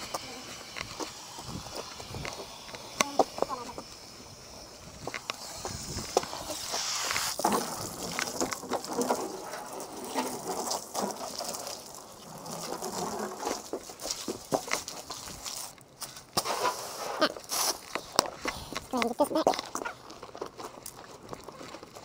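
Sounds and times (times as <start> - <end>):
footsteps on wet concrete: 0.0 - 22.0
brief hiss: 5.2 - 7.8, 16.4 - 18.9
water splashes and knocks: 7.4 - 15.4.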